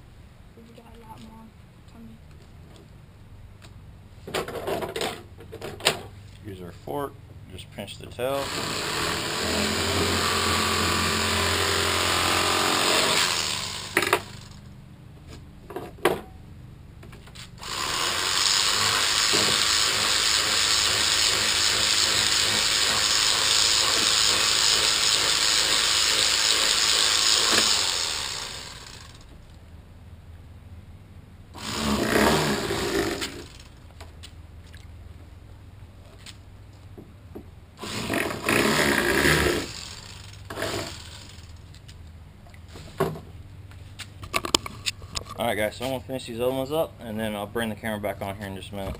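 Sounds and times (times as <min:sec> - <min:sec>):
electric knife motor buzzing: 0:08.4 - 0:14.7, 0:17.6 - 0:29.3, 0:31.6 - 0:33.8, 0:37.8 - 0:41.7.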